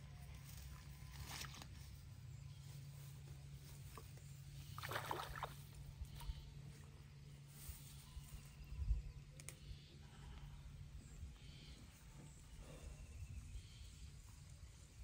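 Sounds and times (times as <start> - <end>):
water sloshing and splashing: 4.6 - 5.8.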